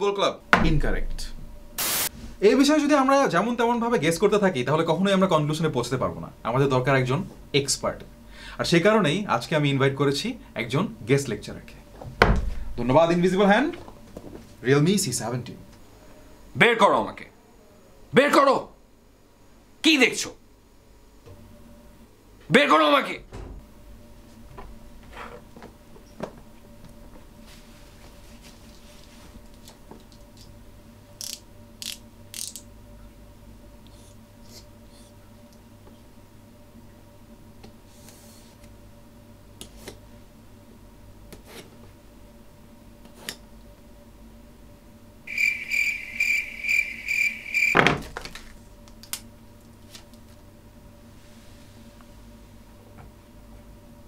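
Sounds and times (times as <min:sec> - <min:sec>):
low room hum: 0:00.0 - 0:54.0
short hissing rustles: 0:01.8 - 0:02.4
pulsing high electronic tone: 0:45.3 - 0:47.8.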